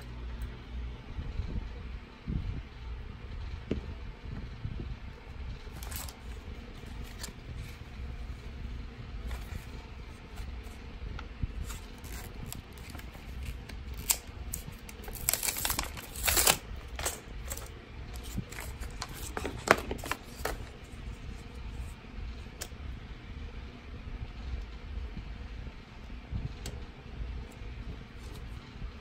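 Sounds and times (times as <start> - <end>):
plastic crinkling tear: 5.7 - 7.8, 11.6 - 20.8
plastic packaging crackling: 5.7 - 7.9, 11.5 - 20.9.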